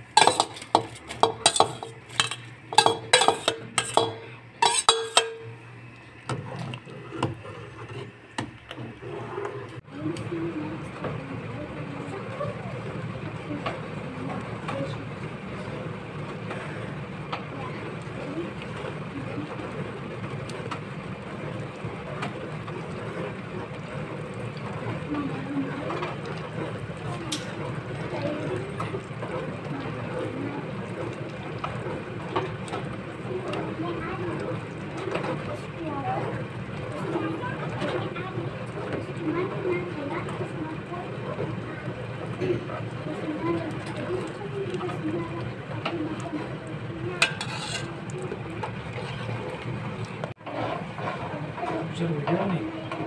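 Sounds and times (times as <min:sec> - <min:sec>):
stock bubbling in a pot: 0:00.0 - 0:53.0
ladle clinking on steel pot: 0:00.1 - 0:05.6, 0:47.2 - 0:47.9
soft stirring taps: 0:00.1 - 0:08.9.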